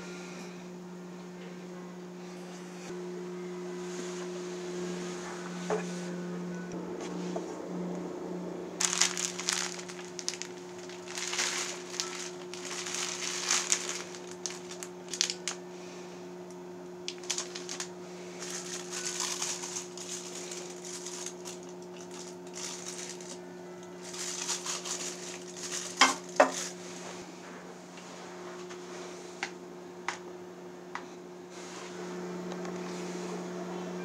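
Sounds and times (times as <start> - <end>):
low hum: 0.0 - 34.0
plastic wrappers crinkling: 8.8 - 15.6, 17.0 - 26.9.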